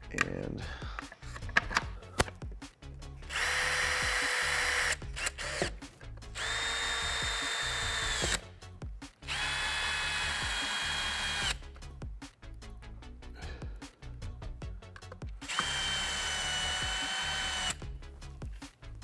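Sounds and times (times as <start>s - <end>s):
cordless drill whining: 3.3s - 8.5s, 9.2s - 11.6s, 15.4s - 17.9s.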